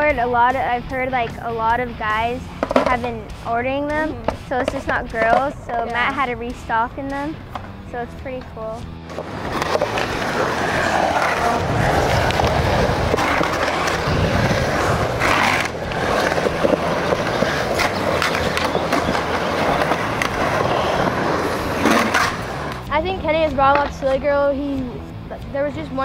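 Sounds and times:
skateboard wheels rolling on concrete: 0:00.0 - 0:26.0
skateboard clicks and knocks: 0:02.6 - 0:03.0, 0:09.1 - 0:22.8.

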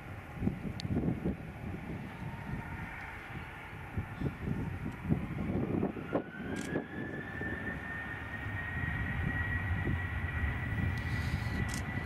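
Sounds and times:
jet engines spooling up: 0:00.1 - 0:12.0
low uneven rumble: 0:08.2 - 0:12.0.

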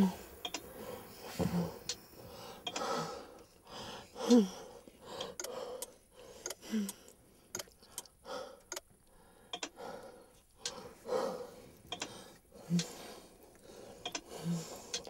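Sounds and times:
person breathing with gasps: 0:00.0 - 0:07.2, 0:07.8 - 0:15.0
small clicks: 0:00.4 - 0:00.6, 0:11.8 - 0:12.2.

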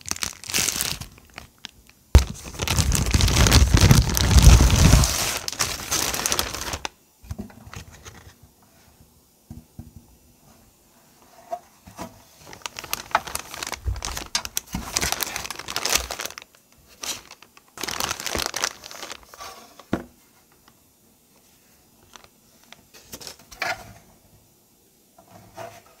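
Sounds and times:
plastic wrap crinkling: 0:00.0 - 0:07.0, 0:12.4 - 0:19.9, 0:22.0 - 0:22.8.

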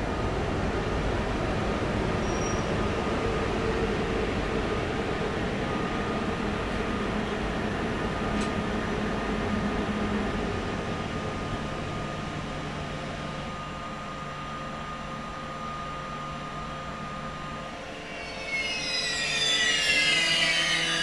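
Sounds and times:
faint high hum: 0:11.1 - 0:21.0.

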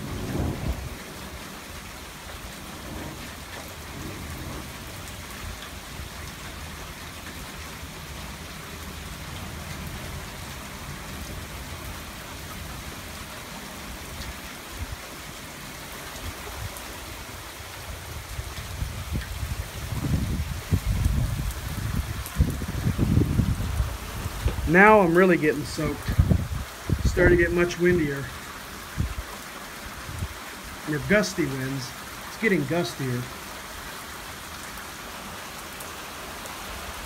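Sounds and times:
low thunder rumble: 0:00.0 - 0:06.8, 0:17.9 - 0:27.8
heavy rain on pavement and plants: 0:00.0 - 0:37.0.

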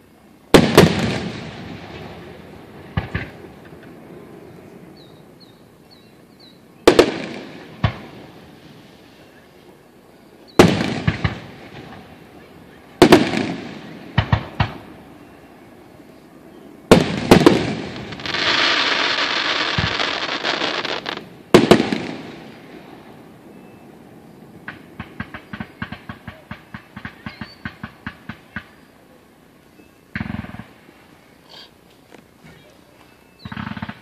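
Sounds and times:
crackling firework pops: 0:02.9 - 0:04.0, 0:06.9 - 0:08.3, 0:10.6 - 0:12.1, 0:13.0 - 0:14.9, 0:16.9 - 0:22.9, 0:24.6 - 0:28.8, 0:30.1 - 0:30.8, 0:33.4 - 0:34.0.

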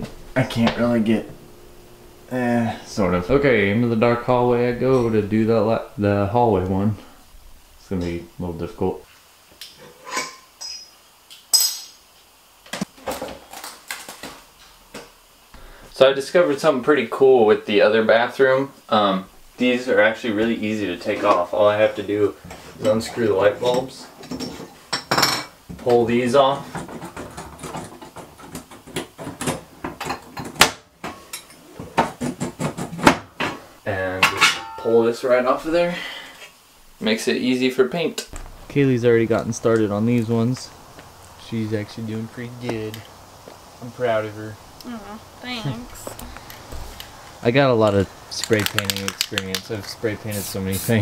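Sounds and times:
glass and metal clinking: 0:10.2 - 0:12.0, 0:34.2 - 0:35.1.

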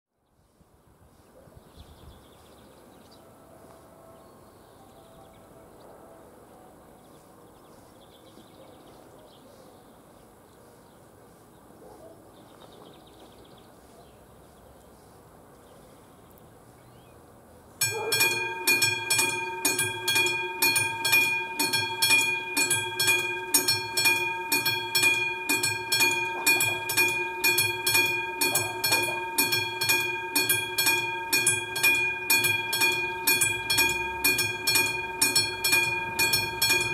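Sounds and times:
crossing warning bell ringing: 0:17.8 - 0:36.9.

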